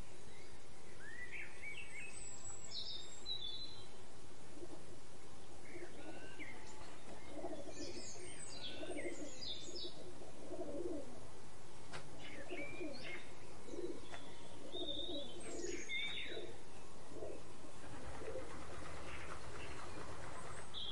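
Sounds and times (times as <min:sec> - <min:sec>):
songbirds chirping and twittering: 0:00.0 - 0:20.9
doves cooing: 0:05.6 - 0:11.3, 0:12.2 - 0:20.7.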